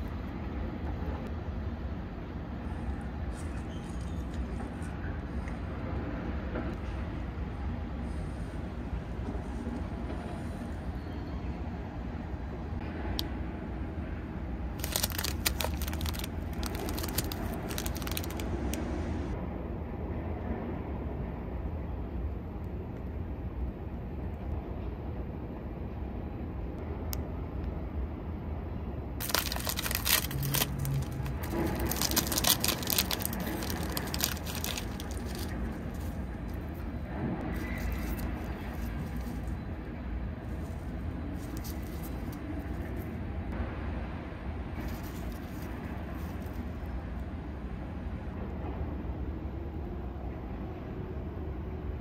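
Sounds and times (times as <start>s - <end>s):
plastic packaging crinkling: 14.8s - 18.8s, 29.2s - 36.8s, 37.6s - 39.6s, 40.5s - 43.0s, 44.8s - 46.6s.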